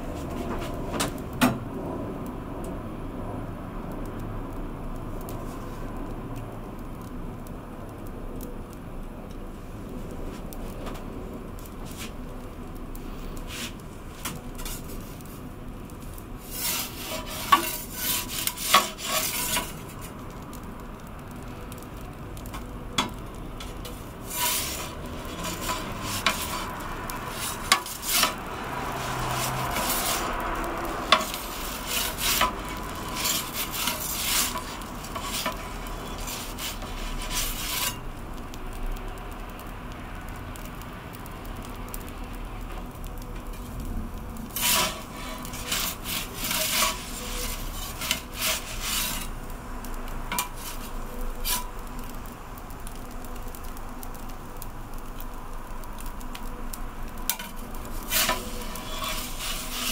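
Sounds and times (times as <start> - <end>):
gas burner hissing: 0.0 - 59.9
metal peel scraping on stone: 16.4 - 20.1, 23.1 - 28.4, 29.0 - 30.4, 31.0 - 38.0, 44.5 - 49.4, 50.3 - 51.7, 57.3 - 59.9.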